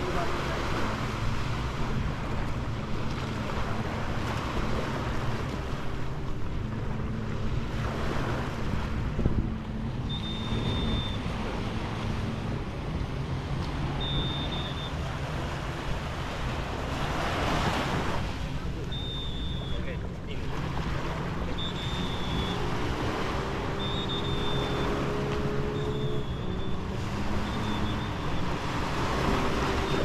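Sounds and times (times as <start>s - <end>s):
surf washing onto beach: 0.0s - 30.0s
high-pitched tones: 10.0s - 11.4s, 13.9s - 15.1s, 18.8s - 20.2s, 21.4s - 28.6s.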